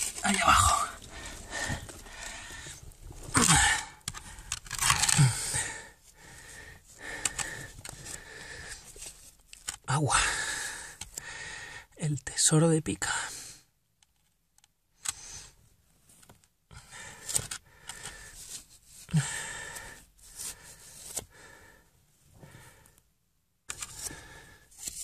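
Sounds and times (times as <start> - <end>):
rustling and clicking handling noise: 0.0 - 5.4, 6.9 - 9.9, 14.0 - 15.2, 15.9 - 19.1, 23.7 - 25.0.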